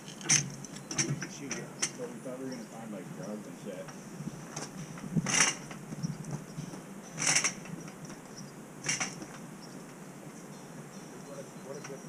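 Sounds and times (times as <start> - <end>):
hand truck clattering down steps: 0.0 - 2.2, 3.8 - 9.4.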